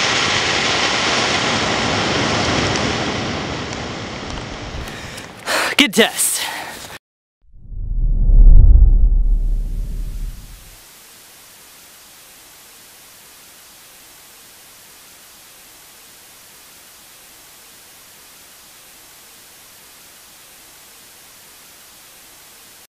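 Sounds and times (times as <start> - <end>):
television static hiss: 10.7 - 22.9.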